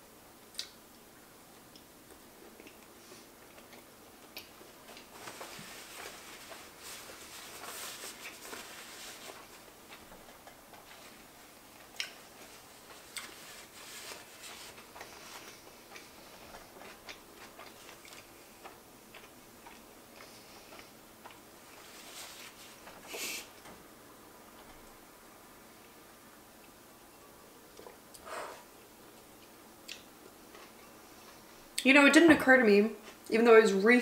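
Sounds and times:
paper napkin rustling: 4.6s - 18.8s, 21.6s - 23.5s
wet chewing and mouth clicks: 11.8s - 12.5s, 14.7s - 21.4s.

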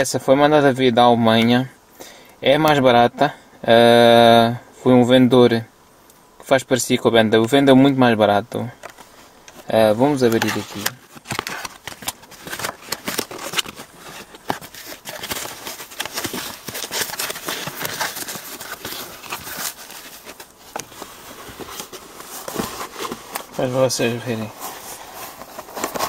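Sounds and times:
foam packing wrap crinkling: 8.8s - 26.0s
cardboard box being opened: 10.0s - 26.0s
small clicks and scrapes: 10.3s - 23.5s.

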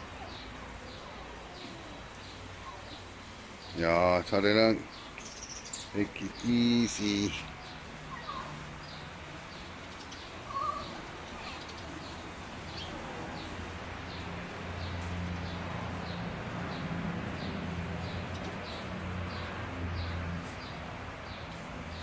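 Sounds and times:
steady outdoor hiss: 0.0s - 22.0s
bird chirping: 0.1s - 16.8s.

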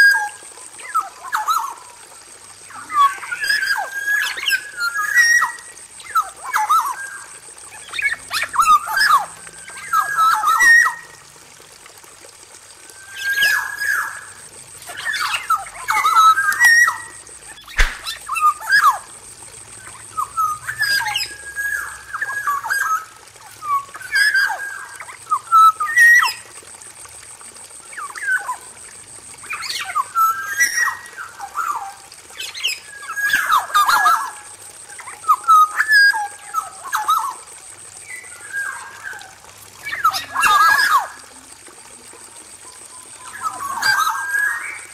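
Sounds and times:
oriole singing whistled phrases: 15.0s - 19.0s, 20.1s - 26.4s, 42.7s - 44.9s.

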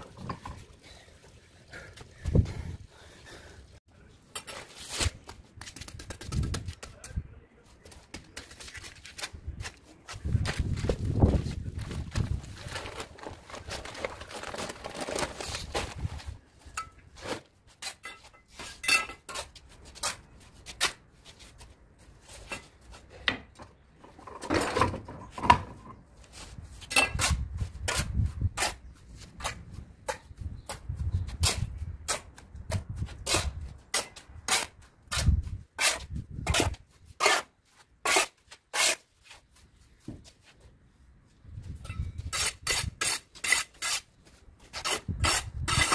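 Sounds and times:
shovel scraping a tiled floor: 33.2s - 39.1s, 42.3s - 44.1s, 44.7s - 45.9s.

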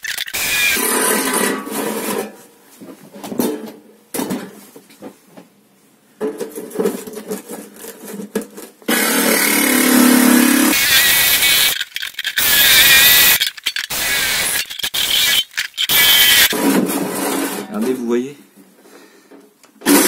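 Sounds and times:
jigsaw cutting metal: 0.0s - 1.3s, 8.9s - 16.6s
drill running: 0.1s - 0.9s, 8.9s - 16.6s.

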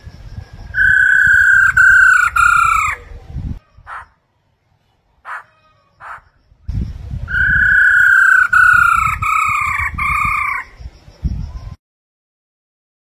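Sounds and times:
bird whistled calls: 0.7s - 3.1s, 7.3s - 11.8s.

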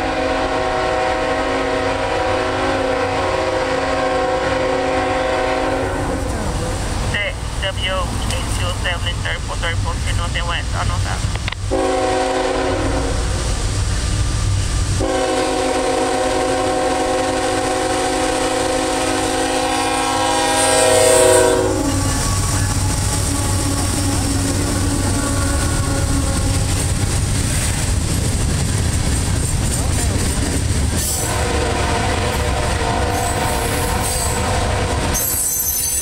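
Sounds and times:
locomotive horn blasts: 0.0s - 6.3s, 11.7s - 13.3s, 15.0s - 26.8s, 31.2s - 36.0s
train cars rumbling past: 0.0s - 36.0s.

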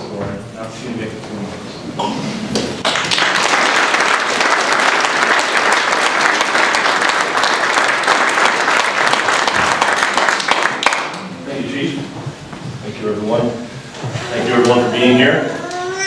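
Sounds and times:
audience applauding: 2.8s - 11.4s.

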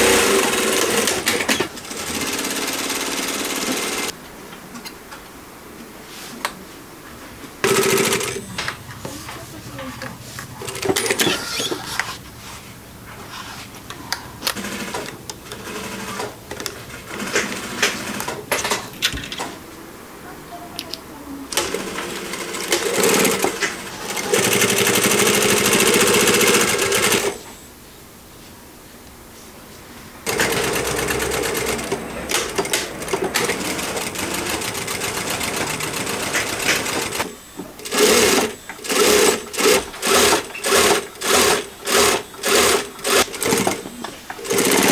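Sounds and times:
sewing machine stitching fabric: 0.0s - 4.1s, 7.6s - 8.7s, 21.6s - 27.4s, 30.3s - 44.9s.

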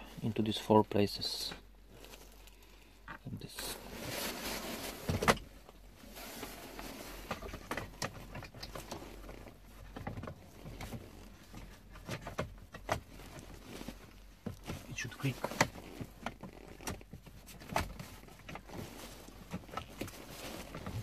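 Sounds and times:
plastic rustling: 3.7s - 12.2s, 12.9s - 21.0s.

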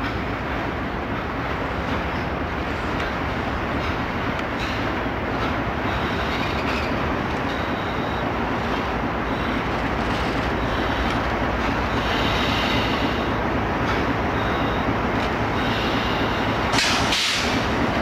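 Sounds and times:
diesel locomotive engine: 0.0s - 18.0s
train wheels on rails: 0.0s - 18.0s
high wheel squeal: 5.9s - 8.0s.

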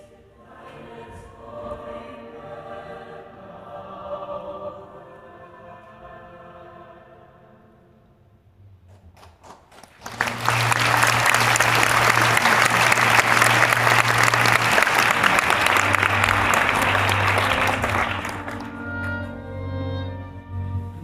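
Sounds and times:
audience applauding: 9.2s - 19.3s
orchestra low held note: 10.3s - 21.0s.

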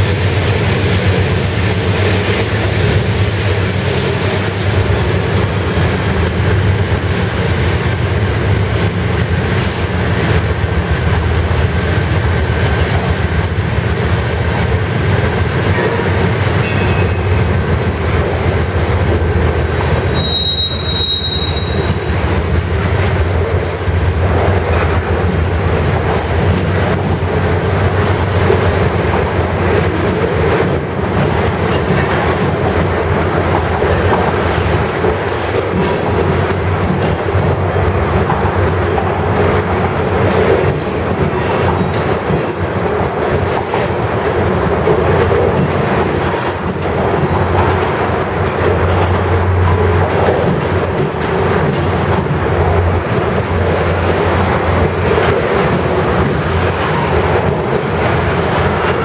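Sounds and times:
train wheels rumbling on rails: 0.0s - 59.0s
wheel squeal on rail: 15.9s - 17.3s, 20.1s - 22.2s.

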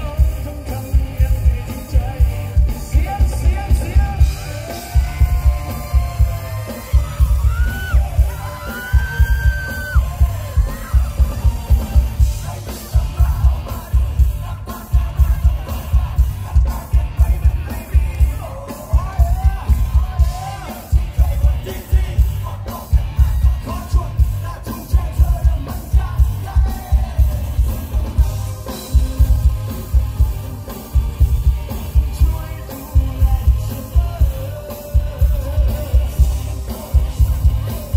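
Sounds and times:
heavy bass beat: 0.0s - 37.9s
live band music: 0.0s - 37.9s
person singing: 0.0s - 37.9s
crowd shouting: 3.8s - 32.0s.

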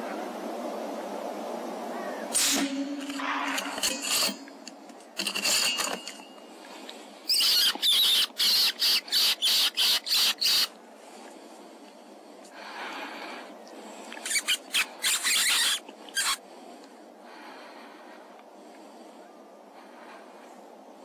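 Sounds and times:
predator call squeaks: 7.3s - 10.8s, 14.2s - 16.4s.

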